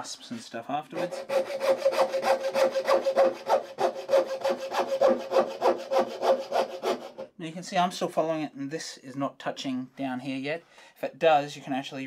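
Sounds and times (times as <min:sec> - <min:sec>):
coping saw cutting board: 0:01.0 - 0:07.3.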